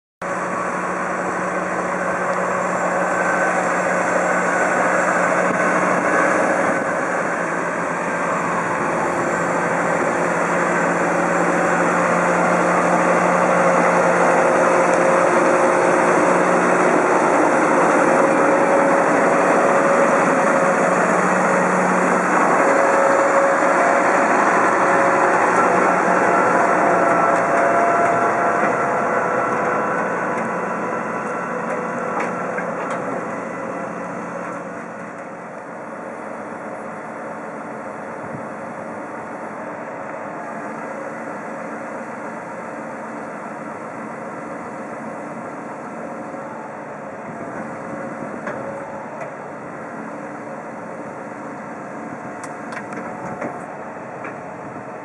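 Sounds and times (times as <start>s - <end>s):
tractor diesel engine running: 0.2s - 55.0s
harvester mechanical din: 0.5s - 35.4s, 52.1s - 54.9s.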